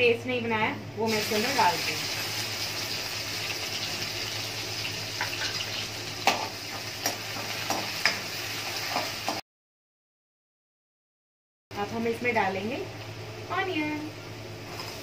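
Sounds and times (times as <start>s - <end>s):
spices sizzling in hot oil: 1.0s - 9.4s, 14.5s - 15.0s.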